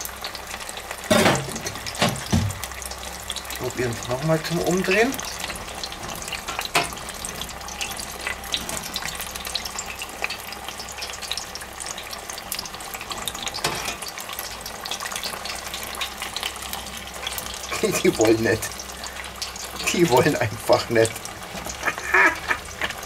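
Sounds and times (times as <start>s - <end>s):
food deep-frying in oil: 0.0s - 23.0s
metal tongs knocking fryer basket: 1.1s - 2.6s, 5.9s - 7.0s, 13.5s - 14.1s.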